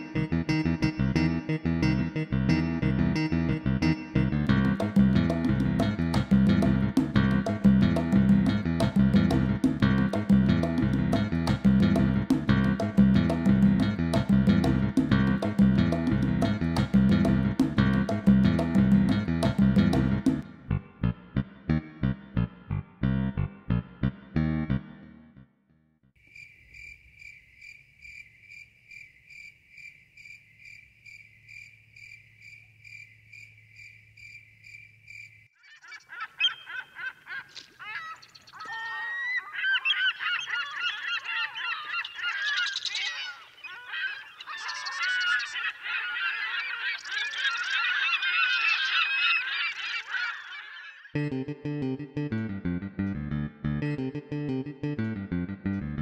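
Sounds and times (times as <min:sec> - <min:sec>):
flock of birds calling: 0:35.6 - 0:51.2.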